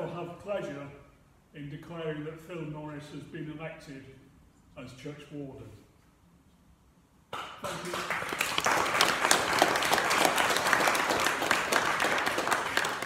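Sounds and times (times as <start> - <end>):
congregation applauding: 7.4 - 13.0.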